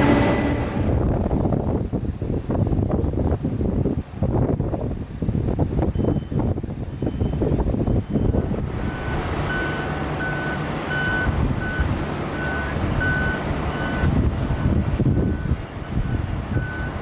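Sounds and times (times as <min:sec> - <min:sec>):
jet engines rumbling: 0:00.0 - 0:17.0
reversing alarm beeps: 0:05.8 - 0:17.0.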